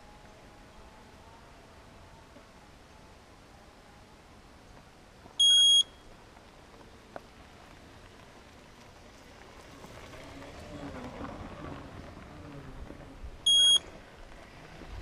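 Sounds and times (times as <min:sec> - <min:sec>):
high electronic beep: 0:05.4 - 0:06.0, 0:13.5 - 0:13.8.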